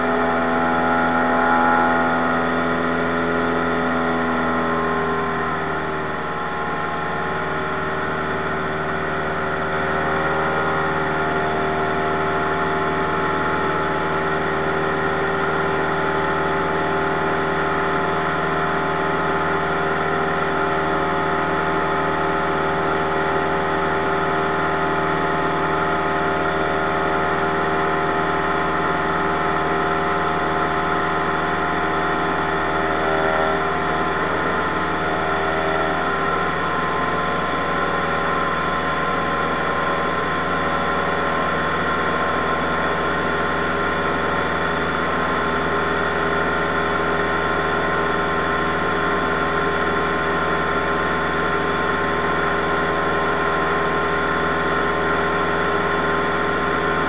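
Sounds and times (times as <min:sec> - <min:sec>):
airplane engine drone in cabin: 0:00.0 - 0:57.0.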